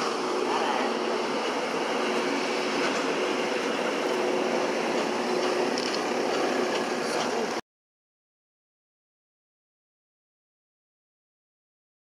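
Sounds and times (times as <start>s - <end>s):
jet engines idling: 0.0s - 7.6s.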